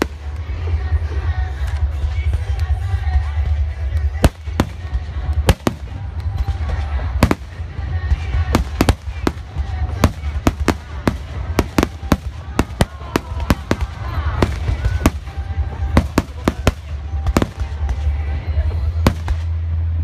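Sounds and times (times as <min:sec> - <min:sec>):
constant low rumble: 0:00.0 - 0:20.0
fireworks bursting in sharp bangs: 0:04.0 - 0:18.3, 0:19.0 - 0:19.6.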